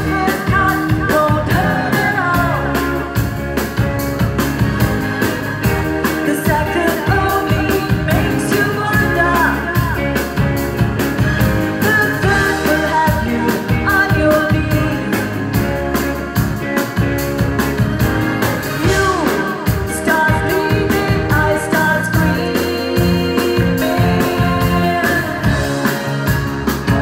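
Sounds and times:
woman singing into microphone: 0.0s - 3.5s, 5.7s - 10.4s, 11.8s - 15.8s, 18.8s - 25.9s
pop band playing: 0.0s - 27.0s
steady drum beat: 0.0s - 27.0s.

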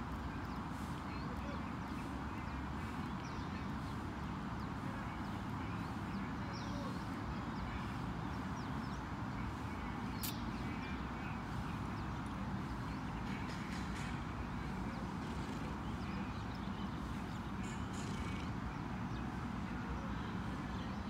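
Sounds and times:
faint bird chirps: 8.6s - 12.0s.

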